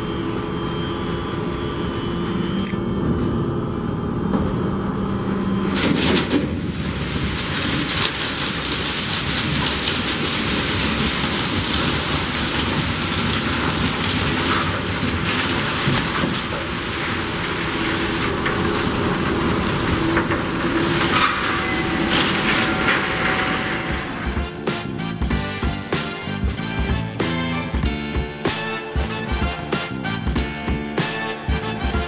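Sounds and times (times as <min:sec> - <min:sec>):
coal pouring into hopper car: 0:05.7 - 0:24.6
music: 0:24.2 - 0:32.0.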